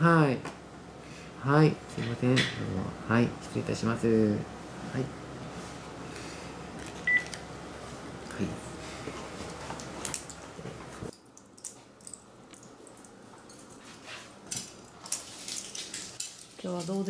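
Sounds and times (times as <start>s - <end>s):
phone handset beep: 7.1s - 7.3s.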